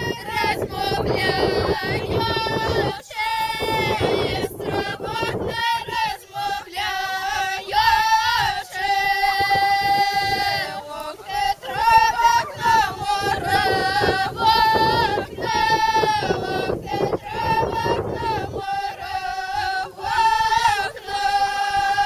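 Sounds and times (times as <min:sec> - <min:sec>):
women singing without instruments: 0:00.0 - 0:22.0.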